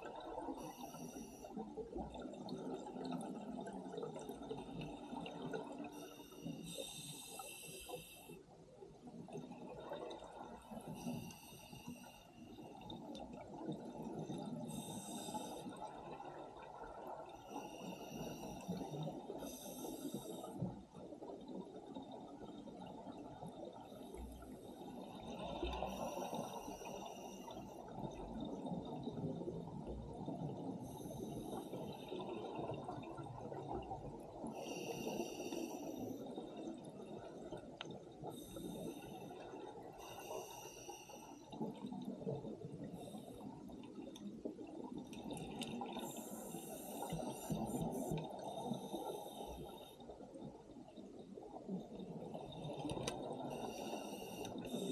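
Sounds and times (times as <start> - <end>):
regulator inhale hiss: 0.5 - 1.6, 5.9 - 8.4, 10.8 - 12.7, 14.5 - 15.8, 17.5 - 20.7, 24.0 - 27.9, 30.8 - 32.2, 34.5 - 36.4, 38.3 - 41.6, 46.0 - 50.0, 53.4 - 54.9.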